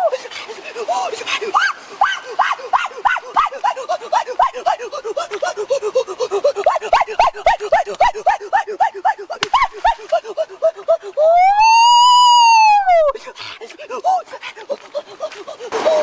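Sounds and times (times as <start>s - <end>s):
rapid alternating animal calls: 1.2s - 11.2s.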